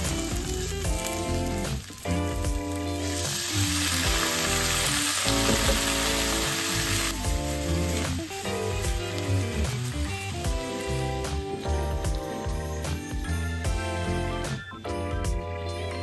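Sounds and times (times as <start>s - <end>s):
fish sizzling in a frying pan: 0.0s - 13.8s
loud sizzle of water in pan: 0.0s - 14.5s.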